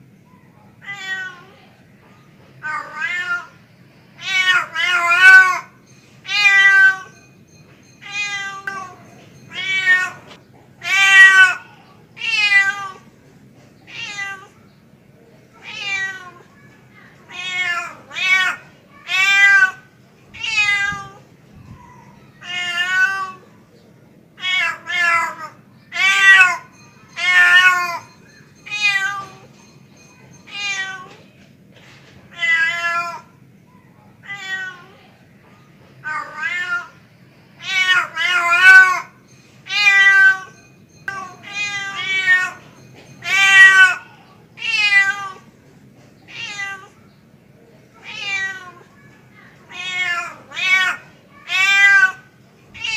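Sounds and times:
cat meowing: 0.8s - 1.6s, 2.6s - 3.6s, 8.0s - 11.6s, 13.9s - 14.6s, 15.6s - 16.4s, 17.3s - 19.8s, 20.4s - 23.4s, 34.2s - 35.0s, 36.0s - 37.0s, 37.6s - 39.1s, 41.1s - 42.6s, 44.6s - 45.4s, 46.3s - 47.0s, 48.0s - 48.8s, 49.7s - 52.2s.

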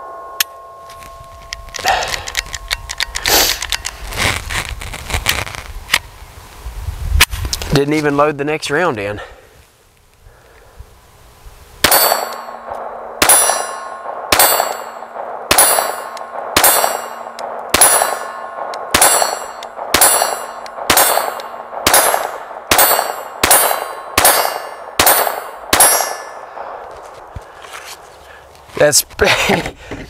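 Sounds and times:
pistol shots: 11.8s - 26.8s
steel target clanging: 11.8s - 26.8s.

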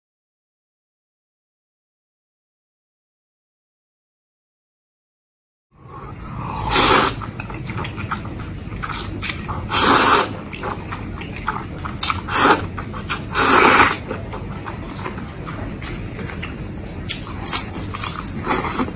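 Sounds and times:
loud noodle slurps: 6.3s - 7.3s, 8.9s - 10.4s, 12.1s - 14.0s
wet chewing and lip smacking: 7.2s - 18.9s.

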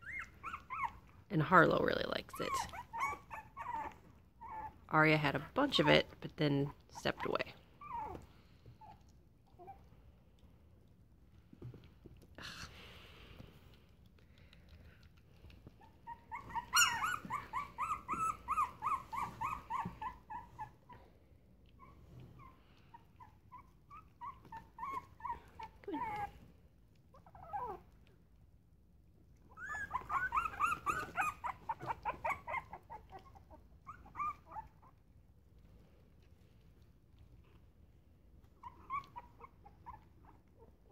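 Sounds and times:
puppies squeaking: 0.0s - 9.9s, 15.4s - 21.0s, 21.7s - 26.4s, 29.5s - 35.0s, 38.5s - 40.9s
puppy whining: 0.0s - 12.7s, 14.1s - 28.2s, 29.3s - 37.7s, 38.3s - 40.9s.

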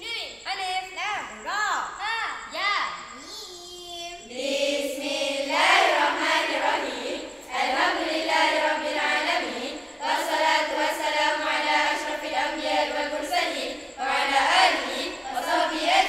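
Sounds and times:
girls singing together: 4.2s - 16.0s.

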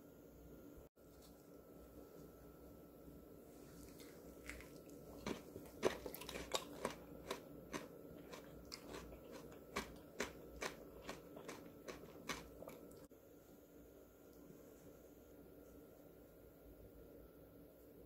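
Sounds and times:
crunching salad: 3.8s - 13.1s.

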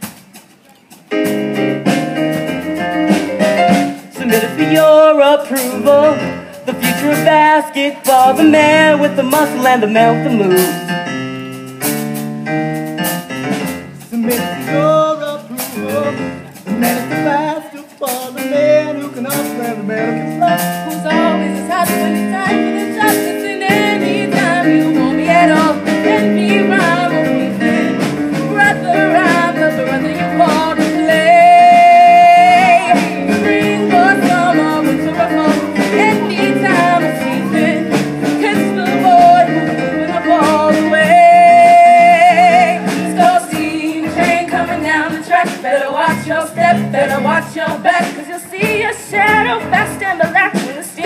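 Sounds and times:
live band music with drums: 0.0s - 51.0s
person singing: 4.1s - 10.9s, 28.4s - 51.0s.

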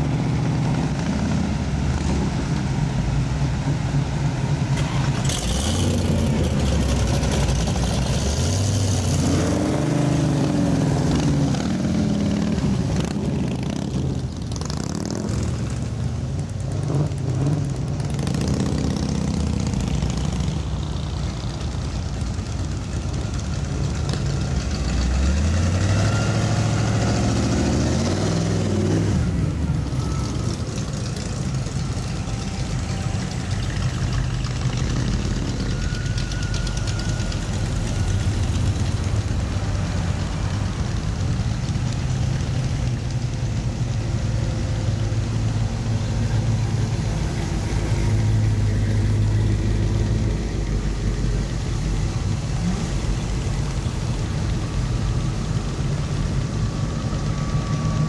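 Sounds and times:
car engines rumbling past: 0.0s - 58.0s
engine revving: 4.8s - 15.8s, 24.8s - 33.4s.

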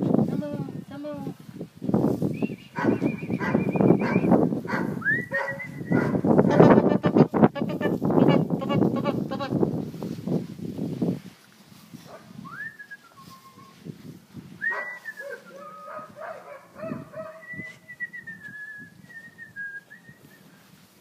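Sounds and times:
person whistling: 2.3s - 4.3s, 5.0s - 6.0s, 12.4s - 13.8s, 14.6s - 15.9s, 17.4s - 20.6s.

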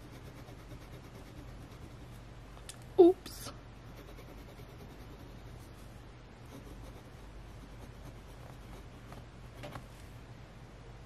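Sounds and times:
fountain pen scratching on paper: 0.0s - 2.2s, 3.9s - 5.8s, 6.4s - 9.8s.

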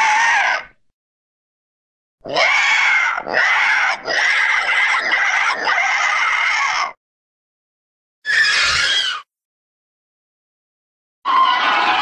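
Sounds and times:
rasping bird-like cry: 0.0s - 0.8s, 2.3s - 7.0s, 8.2s - 9.3s.

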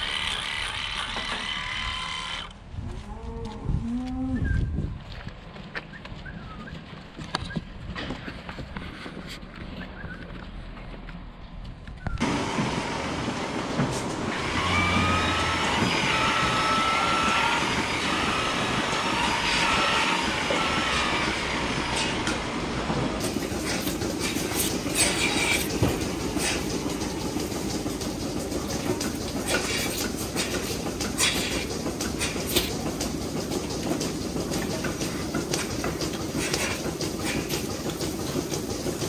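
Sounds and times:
milking machinery rumble and hiss: 0.0s - 3.0s, 12.2s - 39.0s
whistling squeals: 5.9s - 6.8s, 9.8s - 10.3s.

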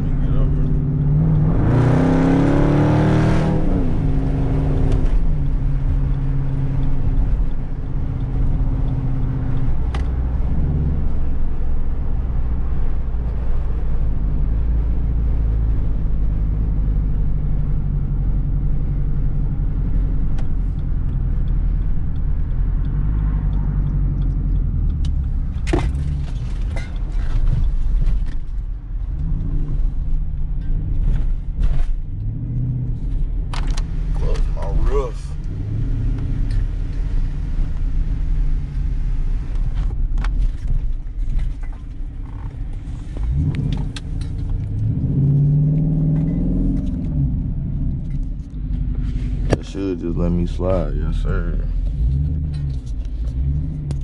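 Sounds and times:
vehicle exhaust revving and droning: 0.0s - 40.0s, 42.1s - 54.0s.

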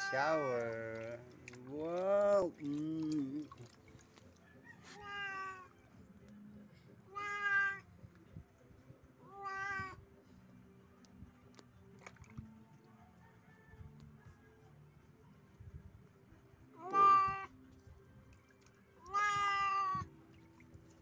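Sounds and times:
cat meowing: 5.0s - 5.7s, 7.1s - 7.8s, 9.2s - 10.0s, 16.8s - 17.5s, 19.0s - 20.1s.

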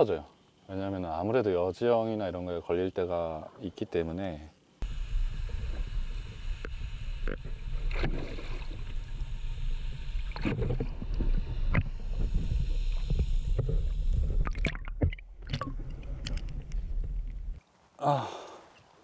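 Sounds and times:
muffled underwater rumble: 4.8s - 17.6s
knocks and splashes: 14.3s - 17.4s.

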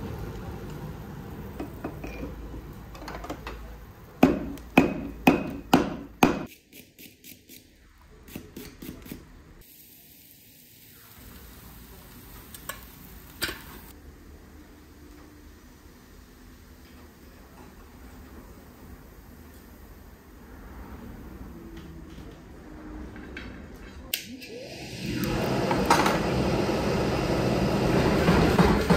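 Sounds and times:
hammer striking steel on anvil: 4.2s - 6.5s.

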